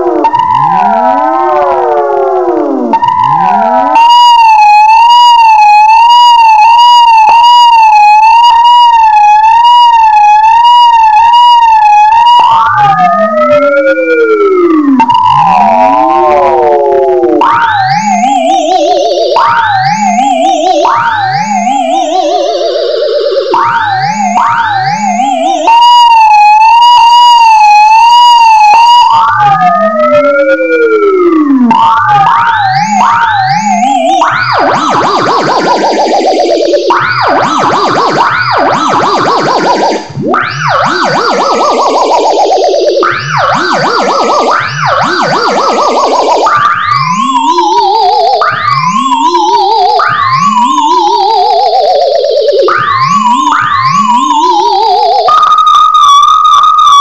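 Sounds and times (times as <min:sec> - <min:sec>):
wavering high electronic tone: 0:17.5 - 0:29.0, 0:31.7 - 0:57.0.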